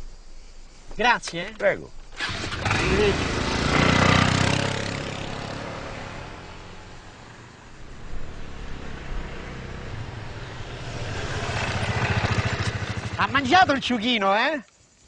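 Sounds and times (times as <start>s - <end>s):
motor scooter engine pulling away: 2.1s - 13.5s.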